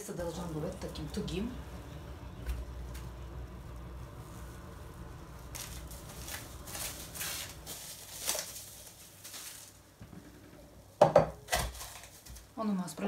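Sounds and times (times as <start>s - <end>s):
cling film crinkling: 2.4s - 10.1s, 11.5s - 12.6s.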